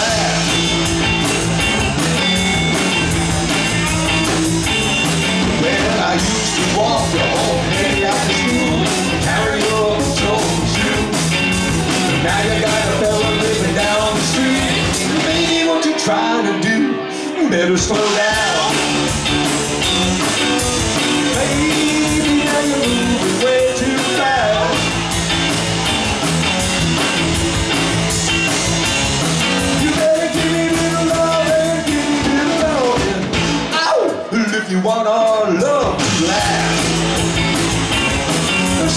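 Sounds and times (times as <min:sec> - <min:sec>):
lead vocal singing: 0:00.0 - 0:01.2, 0:05.4 - 0:19.1, 0:21.2 - 0:24.9, 0:29.6 - 0:37.2, 0:38.6 - 0:38.9
rock band playing: 0:00.0 - 0:38.9.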